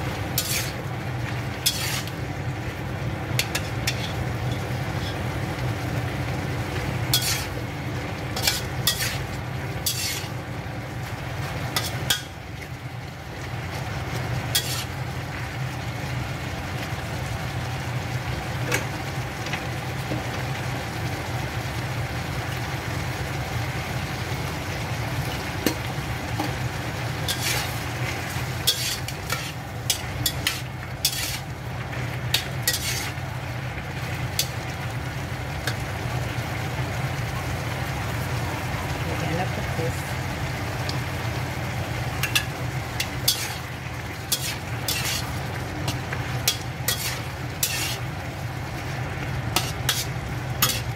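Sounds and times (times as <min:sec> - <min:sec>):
food sizzling in a pan: 0:00.0 - 0:50.9
spatula scraping a pan: 0:00.3 - 0:02.2, 0:03.4 - 0:05.3, 0:07.1 - 0:07.6, 0:08.4 - 0:10.4, 0:11.7 - 0:12.3, 0:14.5 - 0:15.0, 0:27.2 - 0:33.2, 0:34.0 - 0:34.8, 0:42.2 - 0:48.1, 0:49.5 - 0:50.9.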